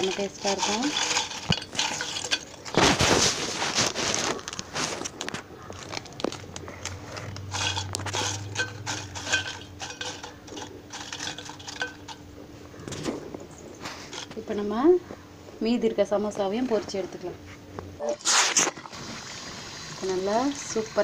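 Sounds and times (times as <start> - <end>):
fried pastry rustling in steel bowl: 0.0 - 14.7.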